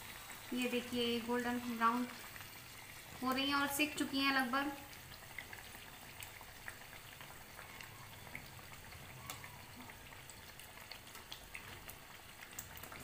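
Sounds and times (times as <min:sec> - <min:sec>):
food sizzling in hot oil: 0:00.0 - 0:13.0
small crackles: 0:04.8 - 0:13.0.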